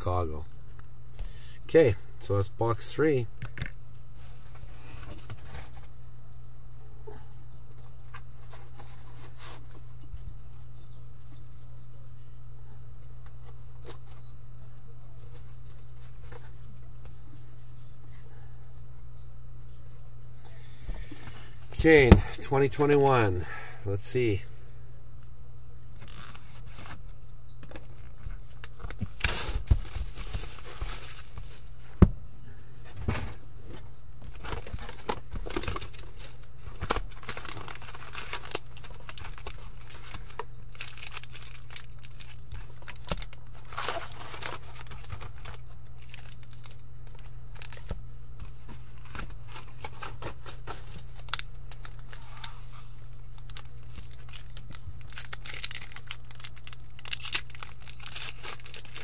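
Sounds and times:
steady low hum: 0:00.0 - 0:59.0
foil packs crinkling and tearing: 0:26.0 - 0:27.0, 0:27.8 - 0:31.7, 0:34.2 - 0:48.0, 0:48.9 - 0:59.0.

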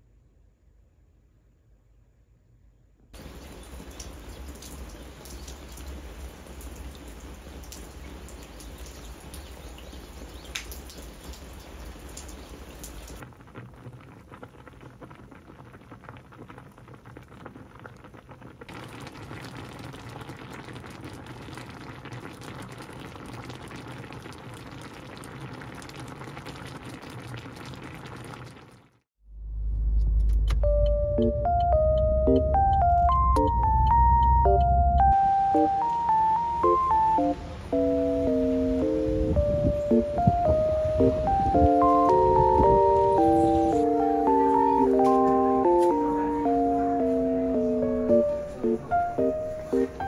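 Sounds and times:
rain falling: 0:03.2 - 0:28.8, 0:31.2 - 0:50.0
pan of food bubbling: 0:03.2 - 0:29.0
music with plinking melody: 0:30.6 - 0:50.0.

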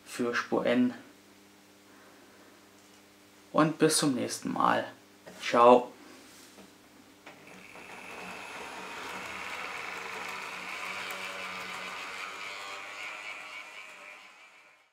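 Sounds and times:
model train wheels on rails: 0:07.3 - 0:14.9
small electric motor whine: 0:07.3 - 0:14.9.

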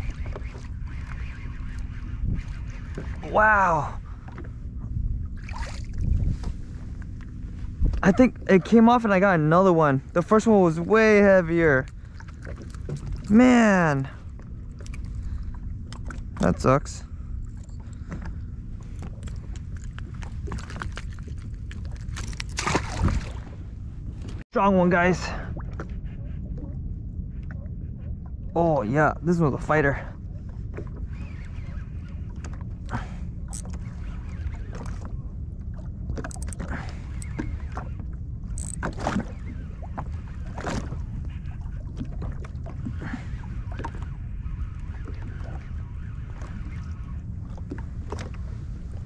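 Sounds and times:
steady low rumble: 0:00.0 - 0:49.0
water splashing against hull: 0:00.0 - 0:49.0
fishing reel clicking: 0:38.6 - 0:38.9.

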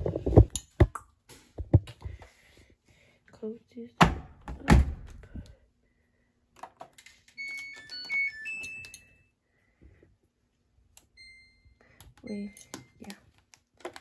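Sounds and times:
washing machine start-up chime: 0:07.4 - 0:09.3, 0:11.2 - 0:12.7.

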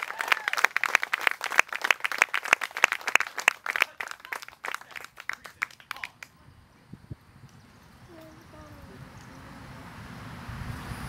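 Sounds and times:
small group applauding: 0:00.0 - 0:06.4.

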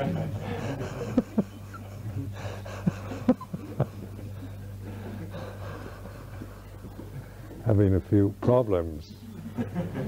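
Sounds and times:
low electrical hum: 0:00.0 - 0:10.0
breath sounds: 0:04.2 - 0:07.6.

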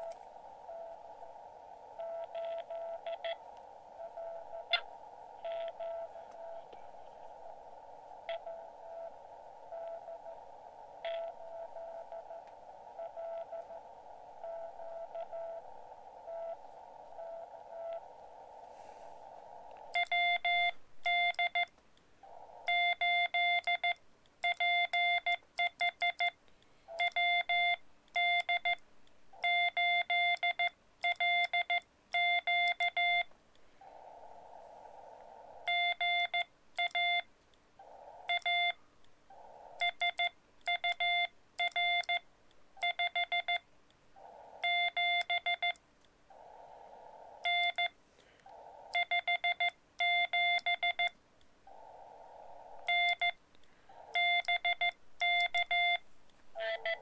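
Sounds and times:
radio receiver hiss: 0:00.0 - 0:24.1, 0:32.4 - 0:57.0
morse code beeps: 0:02.0 - 0:03.4, 0:04.0 - 0:04.8, 0:05.4 - 0:06.6, 0:08.3 - 0:10.3, 0:11.0 - 0:12.4, 0:13.0 - 0:13.8, 0:14.4 - 0:15.6, 0:16.2 - 0:16.6, 0:19.9 - 0:21.7, 0:22.7 - 0:28.8, 0:29.4 - 0:33.3, 0:35.7 - 0:37.3, 0:38.3 - 0:38.8, 0:39.8 - 0:42.2, 0:42.8 - 0:43.6, 0:44.6 - 0:45.8, 0:47.4 - 0:48.0, 0:49.0 - 0:51.2, 0:52.9 - 0:53.4, 0:54.2 - 0:56.0, 0:56.6 - 0:57.0.

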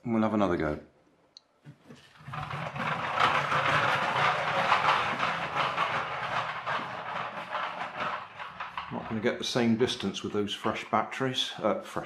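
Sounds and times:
toy tractor rattling on wooden floor: 0:01.7 - 0:10.0.

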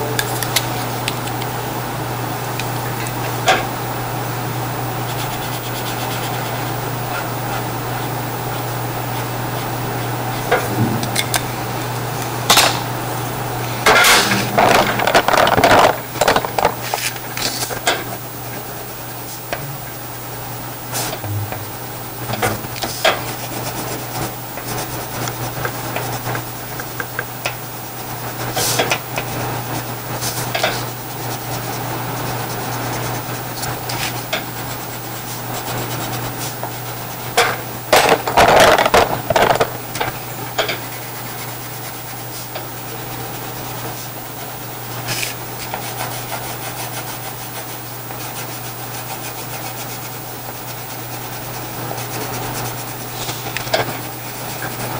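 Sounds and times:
steady low hum: 0:00.0 - 0:27.0
wax crayon rubbing on paper: 0:05.0 - 0:06.7, 0:23.2 - 0:27.0, 0:30.2 - 0:37.2, 0:40.9 - 0:53.6.

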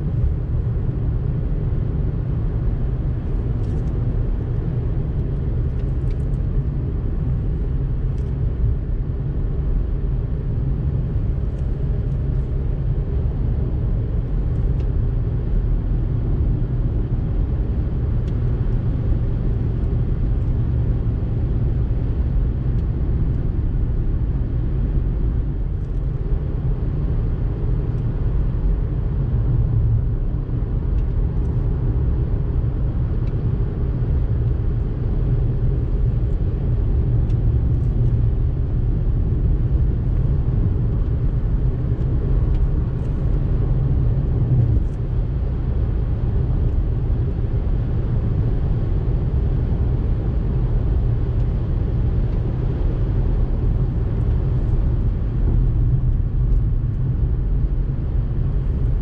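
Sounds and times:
car tyres and engine rumble: 0:00.0 - 0:59.0.

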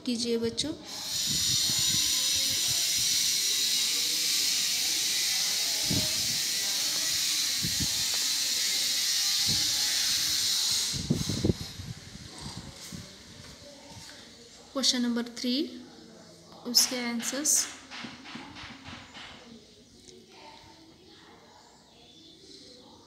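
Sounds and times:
loud steady hiss: 0:00.8 - 0:13.9.

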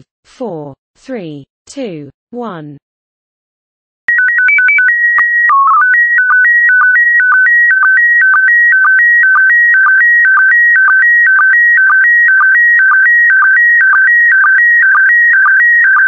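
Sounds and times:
warbling electronic signal tones: 0:04.1 - 0:16.0.

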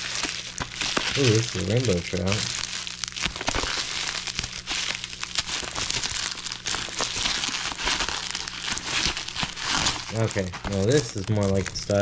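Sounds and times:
packaging bag crinkling: 0:00.0 - 0:12.0.

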